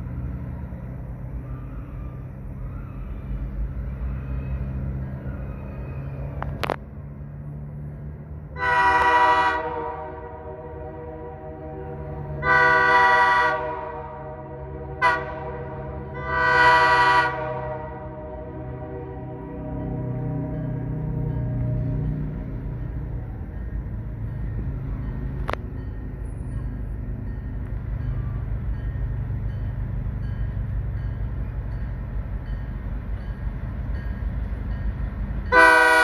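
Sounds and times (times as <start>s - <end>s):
train rumbling: 0.0s - 36.0s
locomotive air horn: 8.6s - 20.5s, 35.5s - 36.0s.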